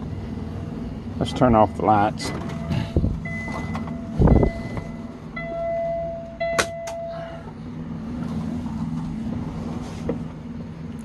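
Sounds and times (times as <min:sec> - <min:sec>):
diesel engine idling: 0:00.0 - 0:11.0
electronic dashboard tone: 0:01.6 - 0:07.2.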